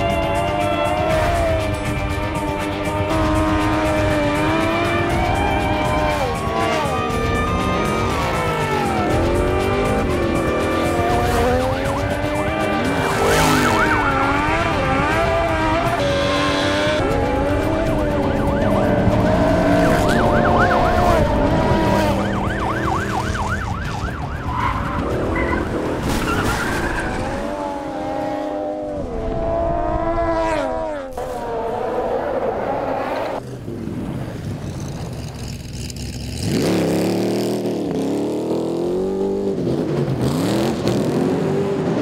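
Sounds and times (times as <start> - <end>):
tires skidding: 0.0 - 28.6
engines revving hard: 0.0 - 42.0.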